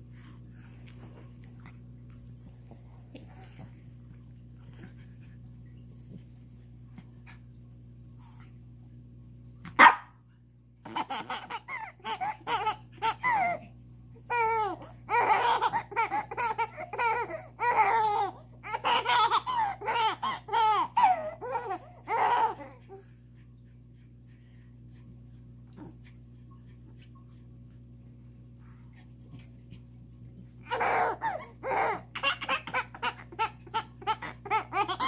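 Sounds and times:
small dog barking: 9.7 - 10.2
baby giggling: 10.9 - 13.6, 14.3 - 22.6, 30.7 - 35.0.

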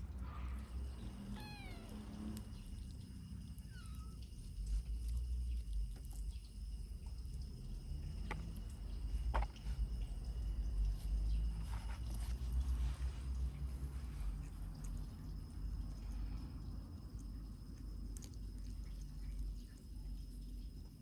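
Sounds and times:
kitten meowing: 1.2 - 2.4, 3.6 - 4.2.

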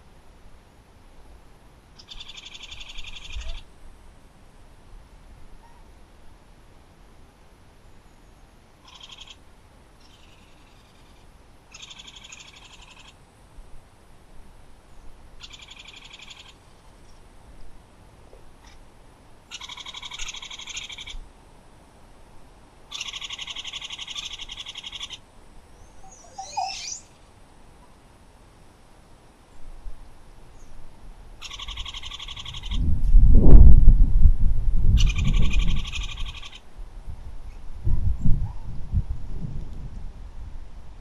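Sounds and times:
animal calling in pulsed trills: 19.5 - 21.2, 22.9 - 25.2, 25.8 - 27.2.

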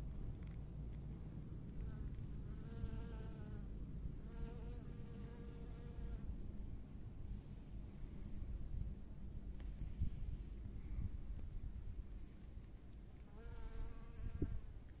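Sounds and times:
steady low rumble: 0.0 - 5.1, 6.0 - 13.2
honeybee buzzing in flight: 13.3 - 14.7.

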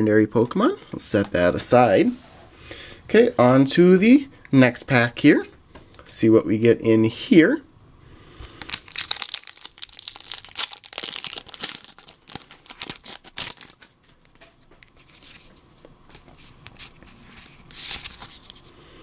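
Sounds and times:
foil wrapper tearing and crinkling: 8.4 - 14.4.

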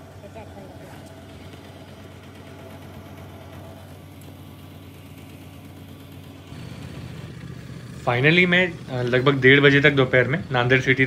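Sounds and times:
fuel pump motor hum: 0.0 - 11.0.

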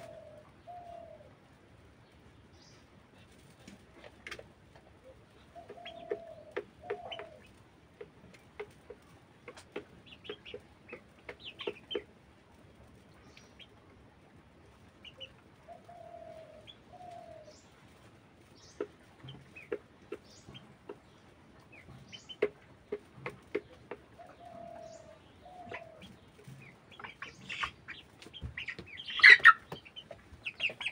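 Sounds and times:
low drawn-out chicken calls: 0.0 - 1.4
chickens clucking softly: 0.0 - 30.9.

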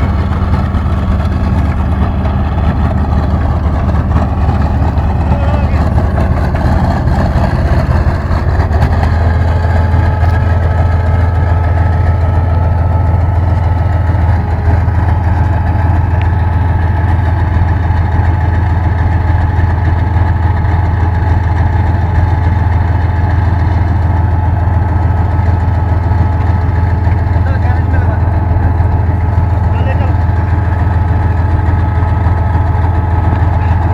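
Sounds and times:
steady high whine: 0.0 - 33.9
tank engine drone: 0.0 - 33.9.

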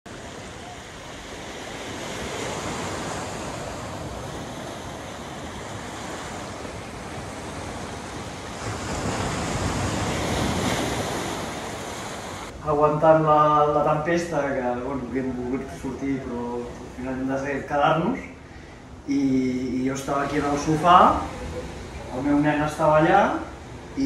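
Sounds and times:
wind buffeting microphone: 0.1 - 12.6
surf washing onto shore: 0.1 - 24.0.

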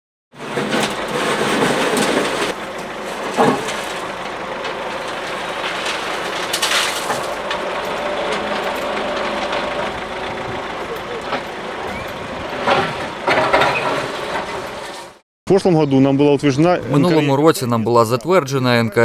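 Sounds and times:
backhoe engine running: 0.4 - 15.2
bucket scraping through asphalt: 0.4 - 15.2.

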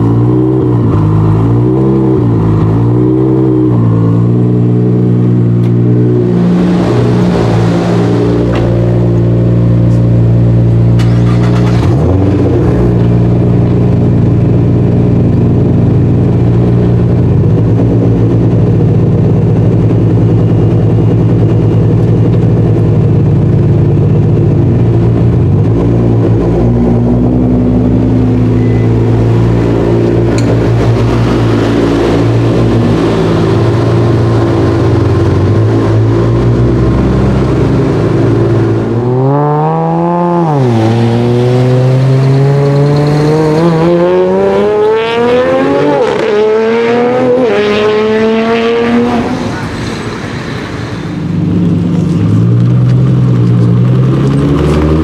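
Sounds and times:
car accelerating hard: 0.0 - 21.3, 24.2 - 50.2, 51.5 - 55.0
car engine idling: 3.6 - 39.0.

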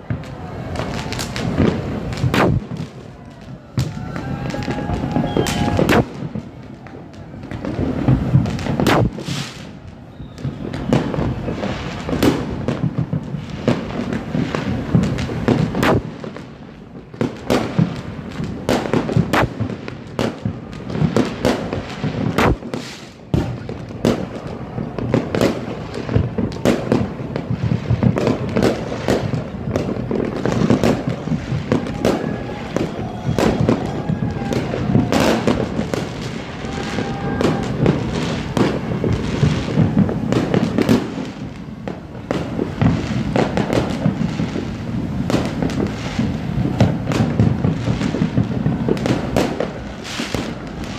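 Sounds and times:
fireworks bangs: 0.0 - 50.9
low rumble of distant fireworks: 0.0 - 50.9.

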